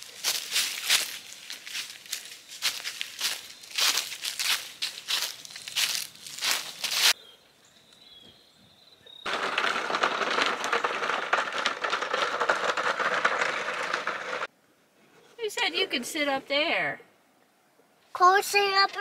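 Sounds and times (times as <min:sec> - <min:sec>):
dry leaves crunching underfoot: 0:00.0 - 0:07.2
toy wheels rolling over gravel: 0:00.0 - 0:07.2, 0:09.2 - 0:14.5.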